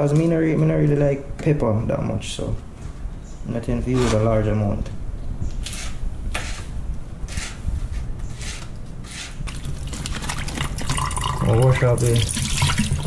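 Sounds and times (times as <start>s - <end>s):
vegetables washed in sink: 9.6s - 13.0s.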